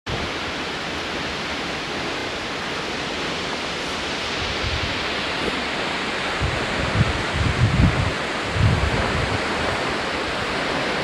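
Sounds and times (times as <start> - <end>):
waterfall rushing: 0.1 - 11.0
wind buffeting microphone: 3.0 - 11.0.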